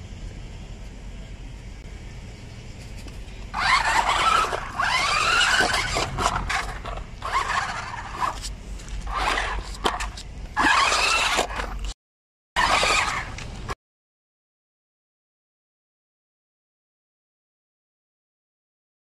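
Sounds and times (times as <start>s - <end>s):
tyres rolling on concrete: 3.0s - 12.0s
toy car electric motor whining: 3.5s - 12.0s, 12.6s - 13.8s.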